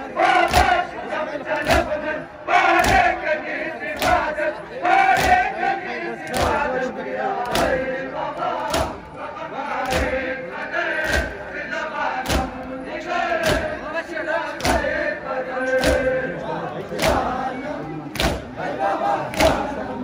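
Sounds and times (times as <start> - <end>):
crowd chanting and calling out: 0.0 - 20.0
people striking chests in unison: 0.4 - 0.8, 2.8 - 3.2, 8.6 - 9.1, 12.2 - 12.6, 13.4 - 13.8.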